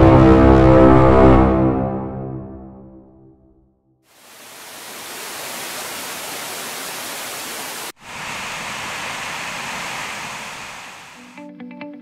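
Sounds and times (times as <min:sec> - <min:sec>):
waterfall rushing: 0:04.1 - 0:11.4
small cascade over rocks: 0:04.2 - 0:11.1.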